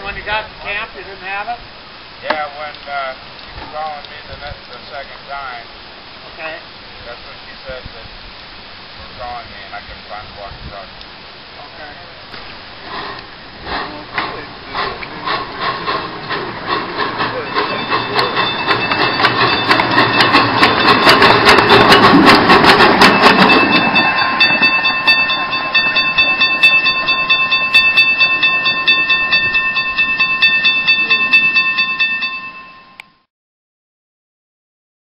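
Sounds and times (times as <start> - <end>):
steam locomotive chuffing: 12.3 - 33.0
steady high tone: 15.8 - 33.2.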